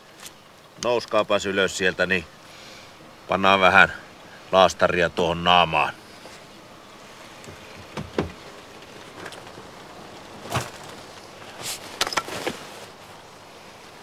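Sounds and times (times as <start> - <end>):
steady low hiss: 0.0 - 14.0.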